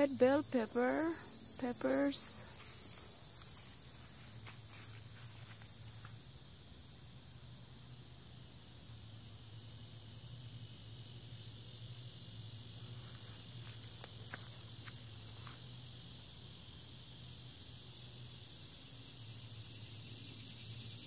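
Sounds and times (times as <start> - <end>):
insects chirping: 0.0 - 21.0.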